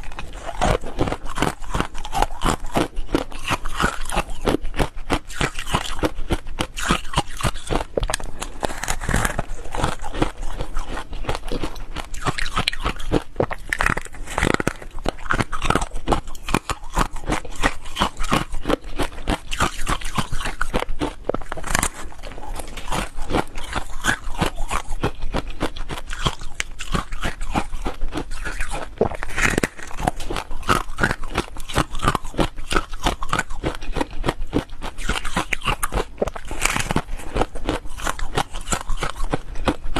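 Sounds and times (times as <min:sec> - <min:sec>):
chewing frozen ice: 0:00.0 - 0:39.9.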